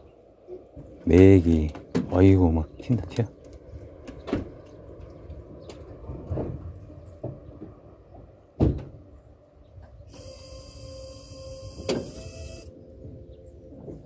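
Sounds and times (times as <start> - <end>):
mechanical whir: 10.1 - 12.7.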